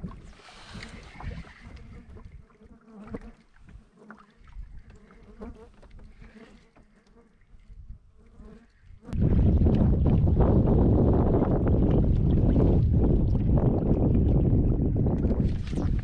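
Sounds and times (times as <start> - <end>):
fly buzzing: 0.7 - 7.4, 8.2 - 9.2.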